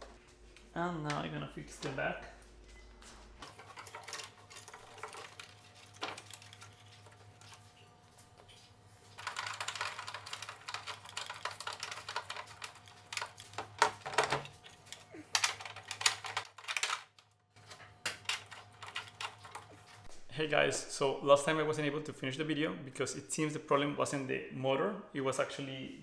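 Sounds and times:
plastic parts clicking and rattling: 0:03.4 - 0:07.6, 0:09.2 - 0:20.0.

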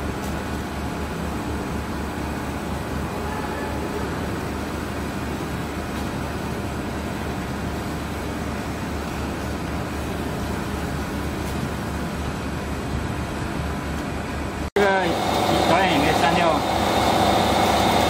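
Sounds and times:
roller machine running: 0:14.8 - 0:18.0.

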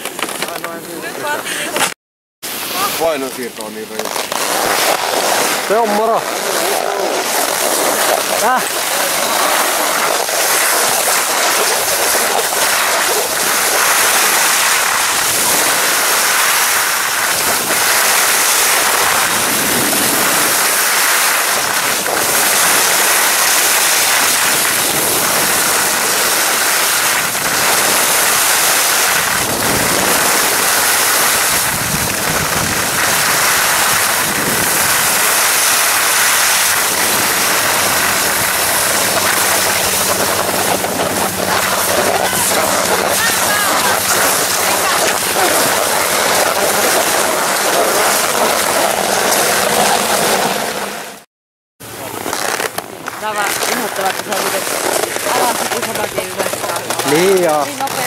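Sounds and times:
skis scraping over packed snow: 0:00.0 - 0:01.9, 0:02.5 - 0:51.2, 0:51.8 - 0:58.0
wind rumbling on microphone: 0:04.4 - 0:50.8.

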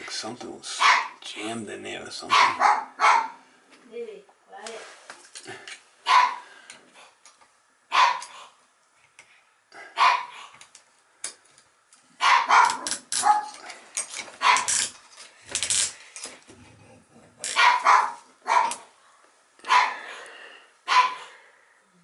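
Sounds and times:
dog barking: 0:00.8 - 0:01.2, 0:02.3 - 0:03.4, 0:06.0 - 0:06.4, 0:07.9 - 0:08.2, 0:09.8 - 0:10.4, 0:12.2 - 0:13.5, 0:14.4 - 0:14.7, 0:17.6 - 0:18.8, 0:19.7 - 0:20.0, 0:20.9 - 0:21.4.

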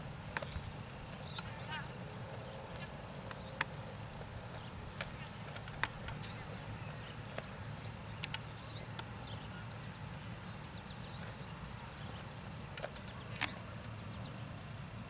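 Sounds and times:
sharp clicks: 0:04.5 - 0:07.5, 0:08.1 - 0:09.2, 0:12.7 - 0:14.0.

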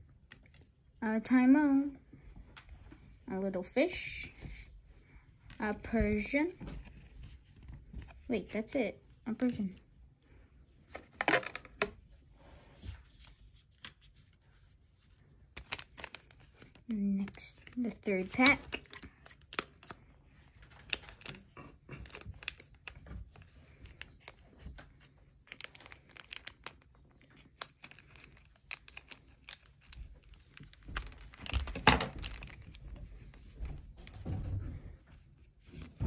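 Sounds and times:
foil wrapper crinkling: 0:20.6 - 0:33.0.

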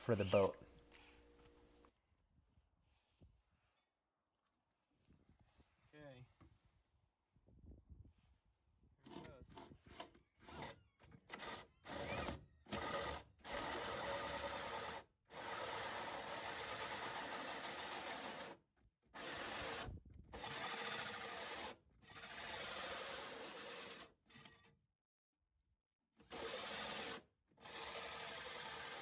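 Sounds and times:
drill hole saw cutting fiberglass: 0:09.1 - 0:18.6, 0:19.2 - 0:24.6, 0:26.2 - 0:29.0.

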